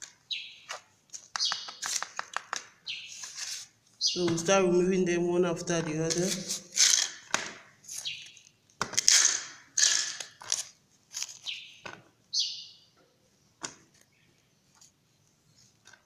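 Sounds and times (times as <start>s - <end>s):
spoon scraping through soil: 6.1s - 7.1s.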